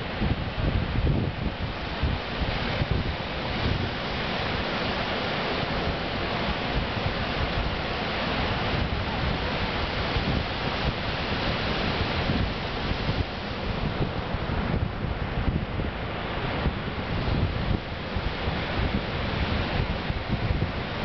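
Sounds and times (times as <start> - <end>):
ocean surf breaking: 0.0 - 21.0
wind buffeting microphone: 0.0 - 21.0.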